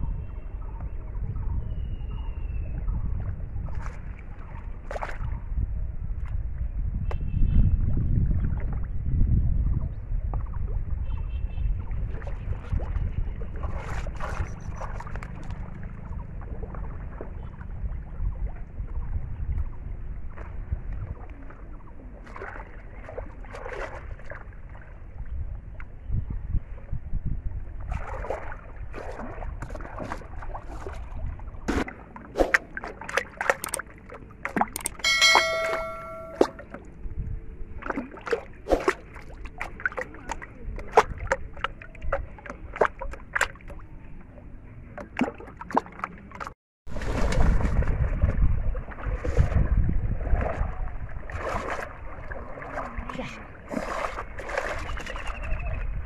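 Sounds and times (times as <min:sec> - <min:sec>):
water sloshing and splashing: 0:03.1 - 0:06.4, 0:11.8 - 0:25.4, 0:27.8 - 0:35.5, 0:37.7 - 0:44.0, 0:44.8 - 0:56.0
brief ringing tone: 0:35.0 - 0:36.6.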